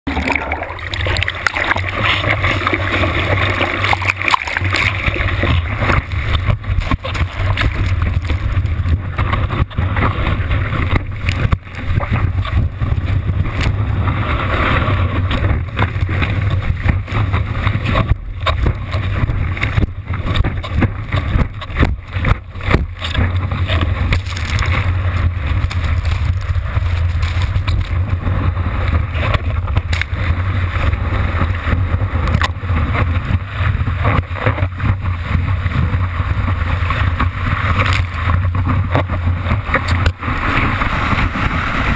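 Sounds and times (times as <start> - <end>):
whitewater rushing: 0.1 - 33.1
sharp knocks and splashes: 0.1 - 41.9.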